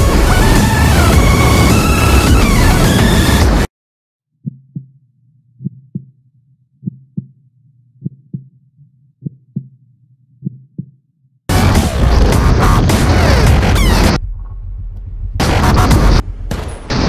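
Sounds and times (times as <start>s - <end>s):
heartbeat double thumps: 4.4s - 5.0s, 5.6s - 6.2s, 6.8s - 7.4s, 8.0s - 9.8s, 10.4s - 16.4s.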